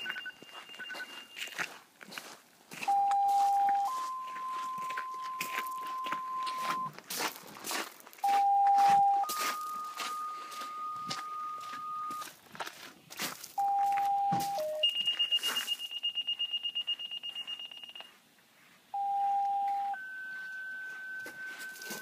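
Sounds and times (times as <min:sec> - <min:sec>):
fast high-pitched beeping: 0:00.0 - 0:01.5, 0:02.9 - 0:06.9, 0:08.2 - 0:12.2
radio paging tones: 0:00.0 - 0:01.6, 0:02.8 - 0:06.9, 0:08.2 - 0:12.2, 0:13.6 - 0:18.1, 0:19.0 - 0:22.0.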